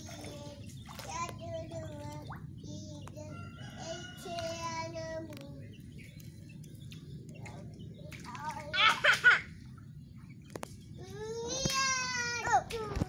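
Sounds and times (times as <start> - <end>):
child's sing-song call: 0.0 - 6.2, 7.3 - 9.1, 10.9 - 13.0
low background hum: 0.0 - 13.0.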